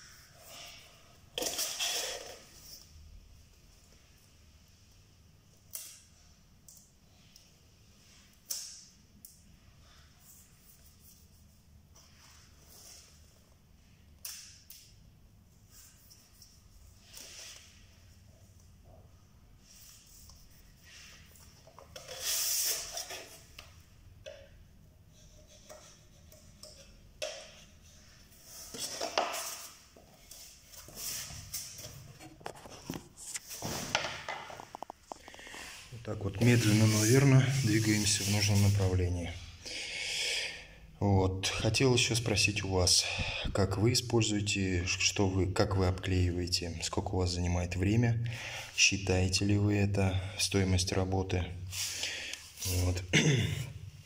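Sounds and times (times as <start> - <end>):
putty knife scraping along tape: 19.8 - 23.7, 25.1 - 33.8.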